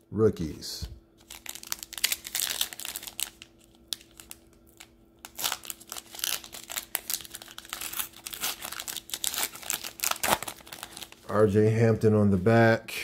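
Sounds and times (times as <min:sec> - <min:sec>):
foil wrapper crinkling: 0:01.2 - 0:11.3.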